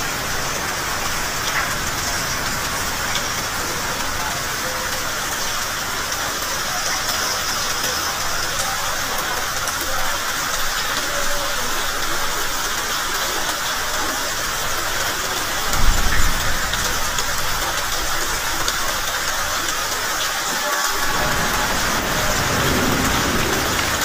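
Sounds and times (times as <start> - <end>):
steady rain falling: 0.0 - 24.0.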